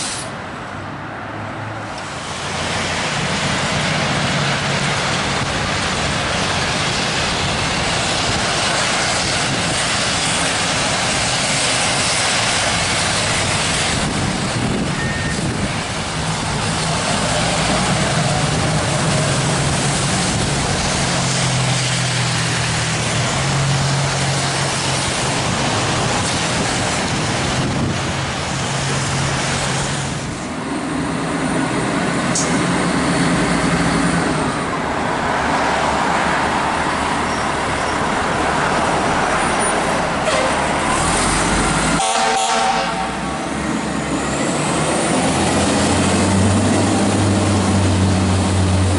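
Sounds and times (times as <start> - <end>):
diesel engines droning: 0.0 - 48.9
rain hissing: 2.0 - 30.6.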